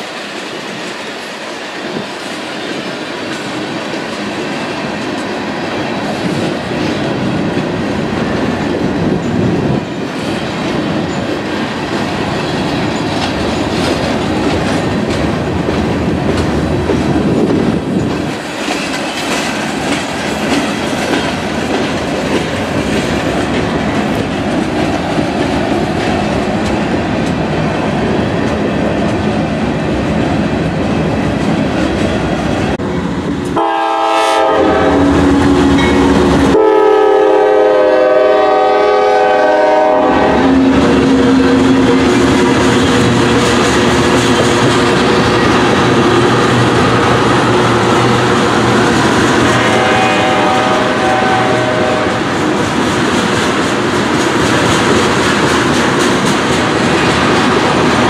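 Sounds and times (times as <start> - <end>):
train wheels rumbling on rails: 0.0 - 58.0
locomotive horn: 33.6 - 42.2, 49.2 - 52.4.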